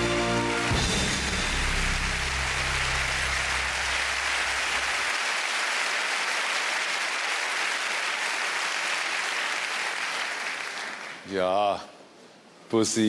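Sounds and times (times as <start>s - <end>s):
large audience applauding: 0.7s - 11.3s.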